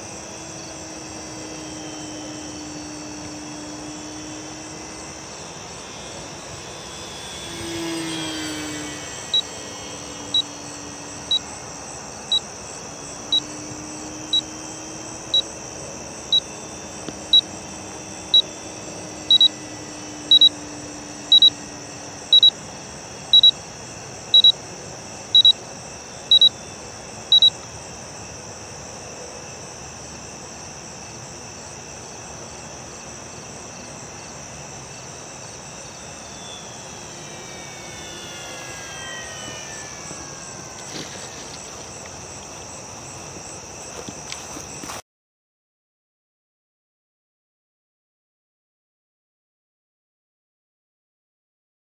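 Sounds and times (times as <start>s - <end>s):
passing whine falling in pitch: 0.0s - 27.6s, 35.8s - 42.4s
crickets chirring: 0.0s - 45.0s
electronic beeper short high beeps: 19.3s - 19.6s, 20.3s - 20.6s, 21.3s - 21.6s, 22.3s - 22.6s, 23.4s - 23.6s, 25.4s - 25.6s, 26.3s - 26.6s, 27.3s - 27.6s.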